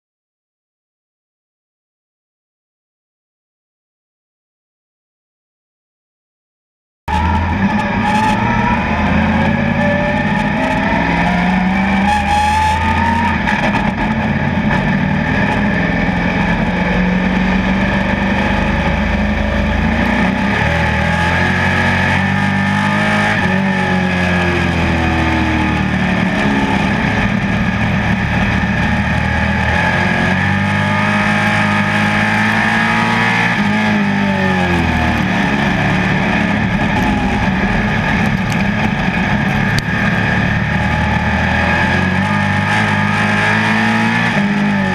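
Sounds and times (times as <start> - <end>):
race car engine running hard: 7.1 - 44.9.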